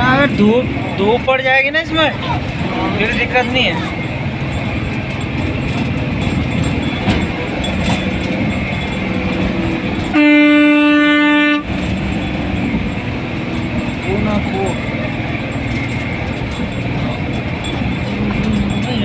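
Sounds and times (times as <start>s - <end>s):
engine running: 0.0s - 19.0s
road noise: 0.0s - 19.0s
vehicle horn: 10.1s - 11.8s.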